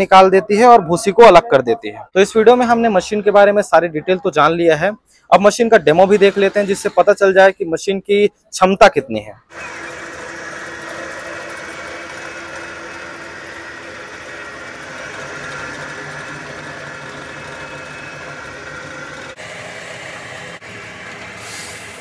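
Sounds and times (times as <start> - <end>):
electric motor hum: 9.5 - 21.6
belt and roller noise: 9.5 - 22.0.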